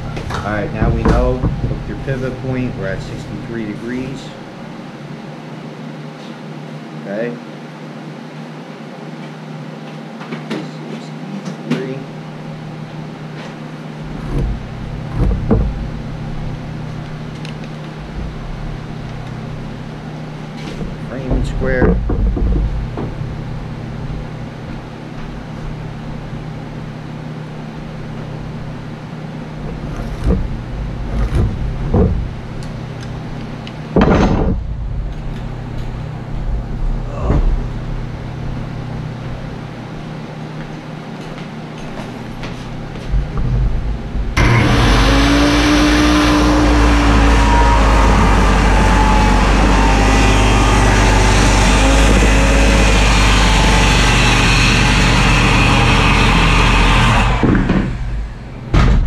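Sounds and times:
knocks and taps on wooden board: 21.3 - 23.2
circular saw cutting wood: 29.6 - 33.1, 44.4 - 58.5.

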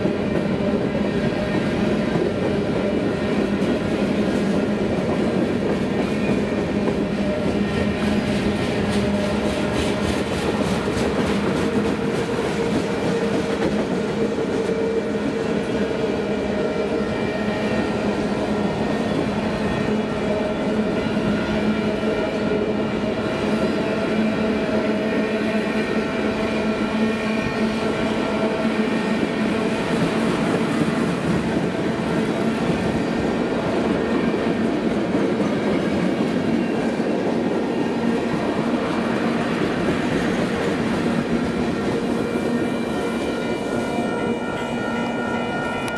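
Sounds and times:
clickety-clack over rail joints: 0.0 - 16.1, 27.8 - 44.3
train wheels on rails: 0.0 - 45.9.

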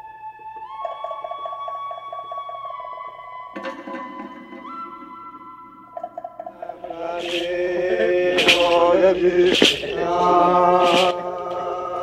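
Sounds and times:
man chanting: 6.7 - 12.0.

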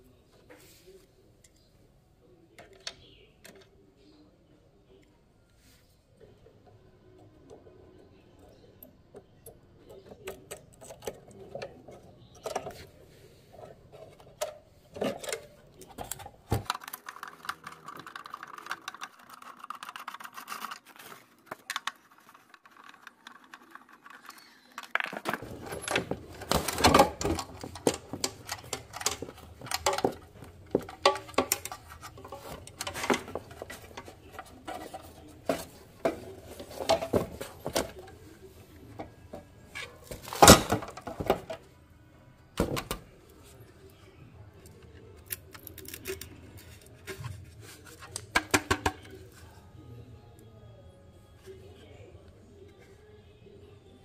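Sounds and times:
small parts and tools clinking: 13.6 - 38.2.

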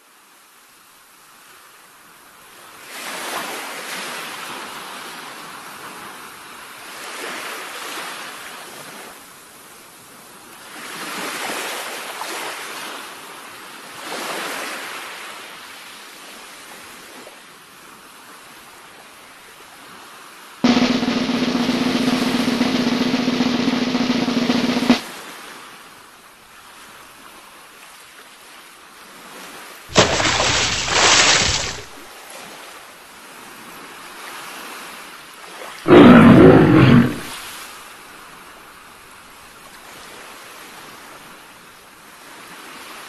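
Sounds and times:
ocean waves washing in: 20.6 - 25.1, 29.9 - 32.1.

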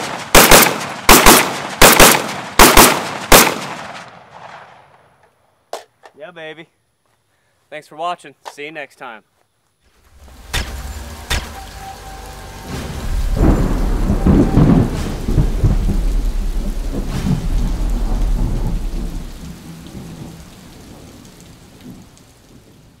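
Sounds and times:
steady rain: 9.9 - 23.0
thunder cracks: 10.2 - 22.9
rolling rumble of thunder: 10.2 - 23.0.

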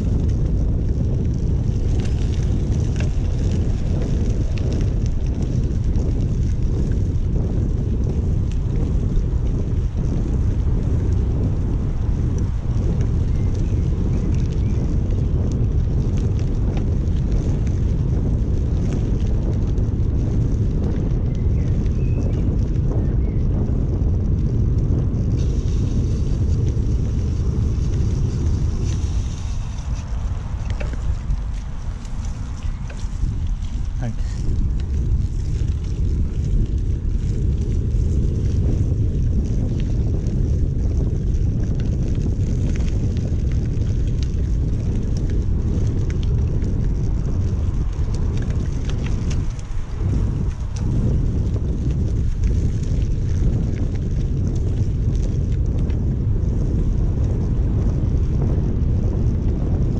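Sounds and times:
bicycle tyres rumbling: 0.0 - 59.9
faint ticks from bike: 0.0 - 59.9
wind buffeting microphone: 0.0 - 59.9
tyres hissing on wet ground: 25.4 - 34.5.

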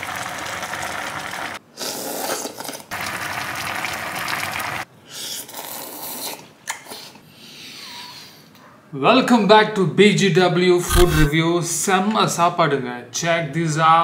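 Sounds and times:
soup boiling and bubbling: 0.0 - 4.9
noodles being slurped: 10.8 - 11.3.

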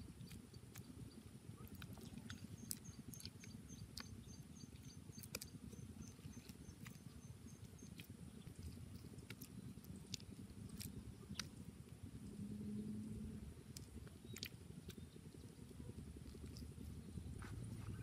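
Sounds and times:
hands squishing wet mud: 0.0 - 18.0.

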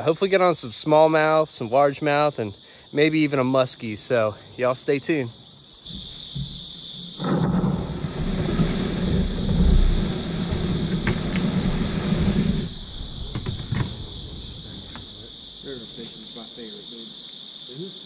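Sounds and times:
insects trilling: 0.0 - 18.0
kayak hull scraping on rocks: 5.9 - 14.2.

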